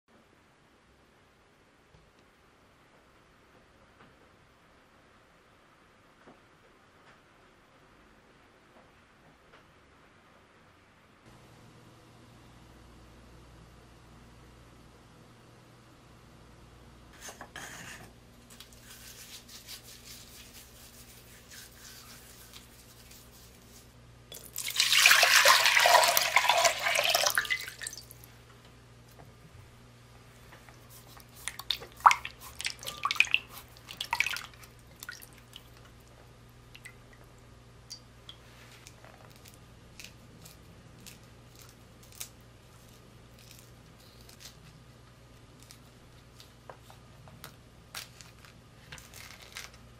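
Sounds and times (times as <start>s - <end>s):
water running into glass bowl: 24.3s - 28.1s, 31.5s - 35.7s
splashing water: 24.3s - 28.3s, 31.2s - 35.8s.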